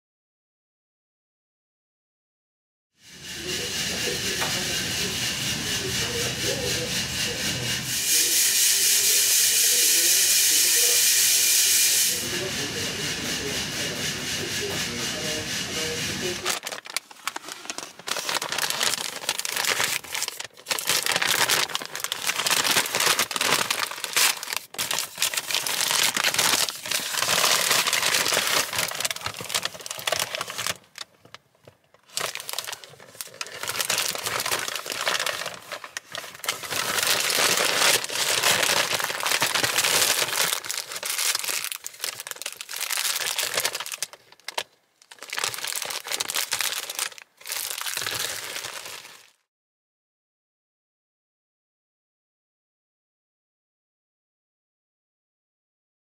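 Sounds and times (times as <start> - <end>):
paper bag crinkling: 16.4 - 49.4
plastic bag crinkling: 16.4 - 49.4.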